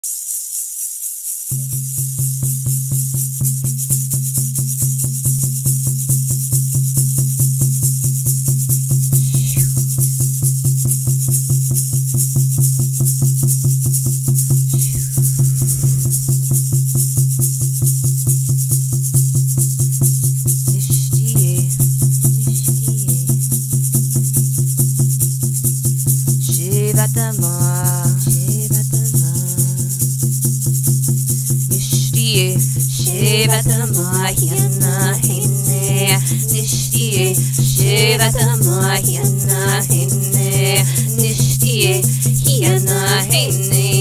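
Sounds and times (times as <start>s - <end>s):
shaken rattle: 0.0s - 7.4s, 8.2s - 10.2s, 18.5s - 44.0s
brief falling glides: 9.2s - 10.1s, 14.7s - 16.8s
fast ringing drumbeat: 26.6s - 44.0s.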